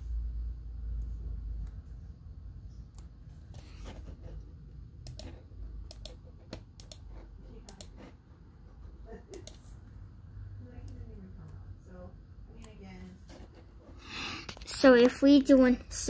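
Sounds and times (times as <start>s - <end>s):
computer keys clicking: 2.8s - 3.7s, 5.0s - 8.0s, 9.3s - 9.7s.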